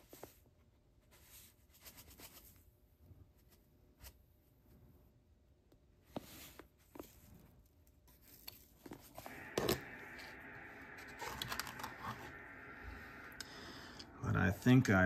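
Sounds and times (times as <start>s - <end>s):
faint steady hiss: 8.8s - 15.0s.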